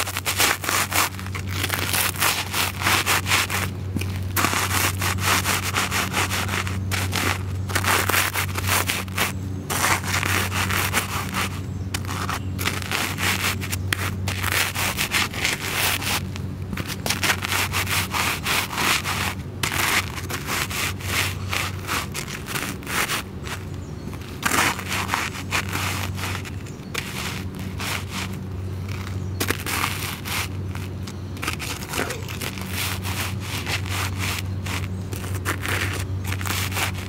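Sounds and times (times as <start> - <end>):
shoes crushing crumbs on pavement: 0.0 - 37.0.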